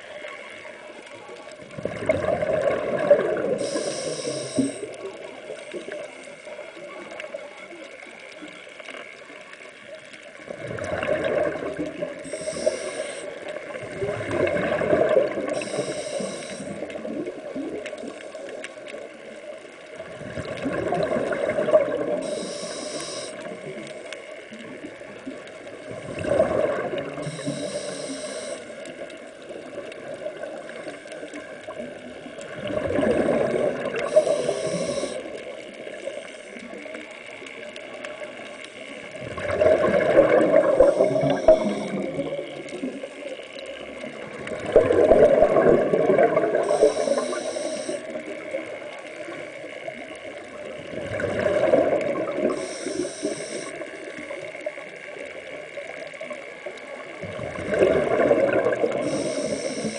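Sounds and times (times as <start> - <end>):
exhaled bubbles gurgling underwater: 0.0 - 59.9
regulator valve hiss: 3.6 - 4.9, 12.3 - 13.4, 15.6 - 16.8, 22.2 - 23.5, 27.2 - 28.7, 34.0 - 35.3, 40.8 - 42.0, 46.6 - 48.0, 52.5 - 53.8, 59.0 - 59.9.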